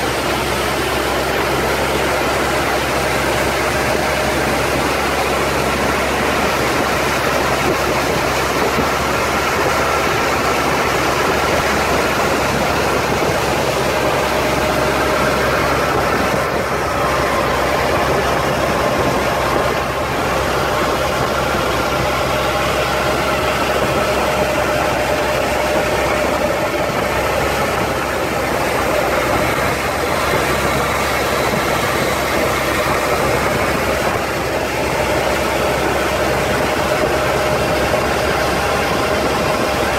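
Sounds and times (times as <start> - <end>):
boat engine running: 0.0 - 39.9
water rushing past hull: 0.0 - 39.9.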